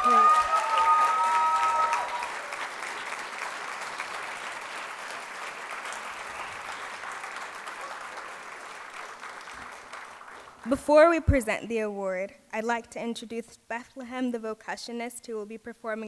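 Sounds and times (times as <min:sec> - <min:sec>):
audience applauding: 0:00.0 - 0:10.8.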